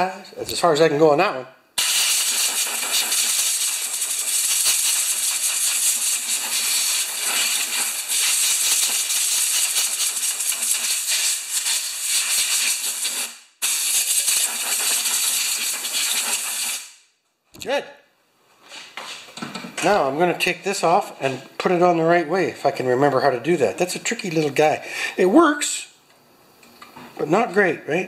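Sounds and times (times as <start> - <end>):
spray hissing: 1.8 - 16.9.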